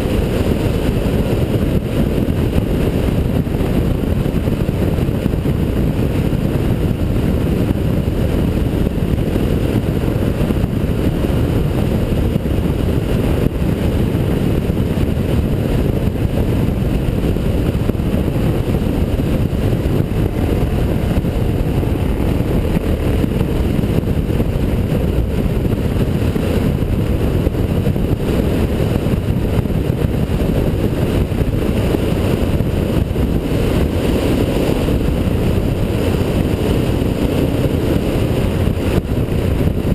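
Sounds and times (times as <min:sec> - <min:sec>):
dirt bike engine cruising: 0:00.0 - 0:39.9
wind on microphone: 0:00.0 - 0:39.9.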